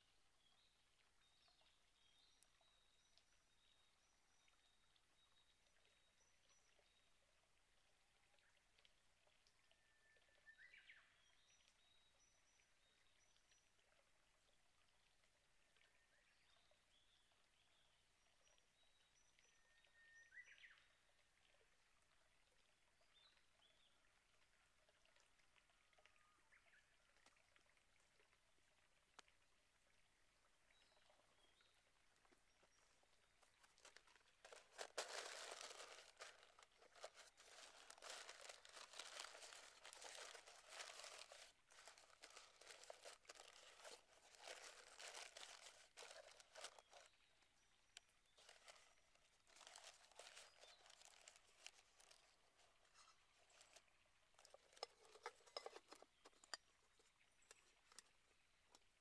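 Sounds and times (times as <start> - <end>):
paper crinkling and rustling: 33.6 - 47.1, 48.4 - 53.8, 54.4 - 56.5.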